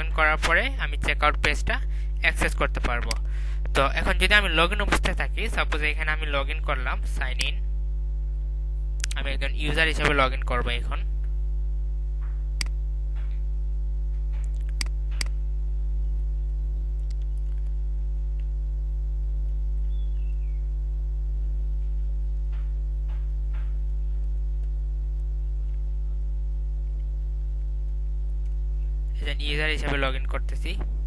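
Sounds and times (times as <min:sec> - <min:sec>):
low electrical hum: 0:00.0 - 0:31.0
keyboard and mouse clicks: 0:14.4 - 0:15.4, 0:17.0 - 0:17.7.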